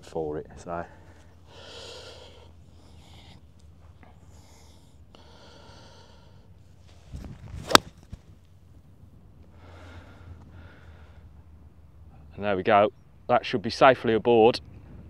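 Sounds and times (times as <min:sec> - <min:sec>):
faint breaths: 0:00.5 - 0:07.1, 0:09.4 - 0:12.3
golf club swish: 0:06.8 - 0:08.4
golf club striking ball: 0:07.6 - 0:08.3.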